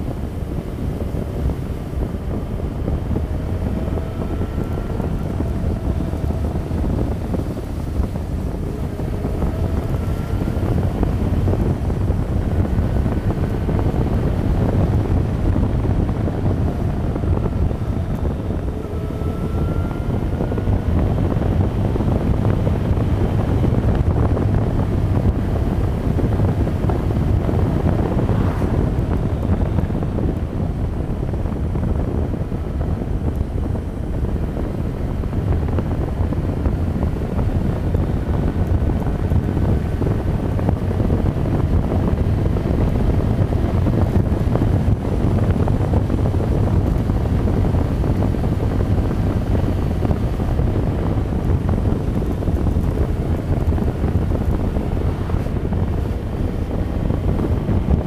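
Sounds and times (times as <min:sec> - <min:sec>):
motorcycle engine: 0:00.0 - 0:31.4
wind rumble on microphone: 0:00.0 - 0:58.0.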